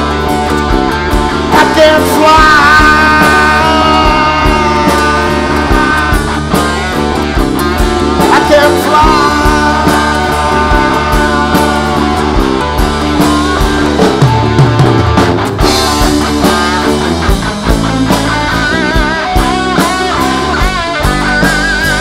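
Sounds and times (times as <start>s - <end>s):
live rock band playing: 0.0s - 22.0s
voices singing: 1.5s - 13.8s.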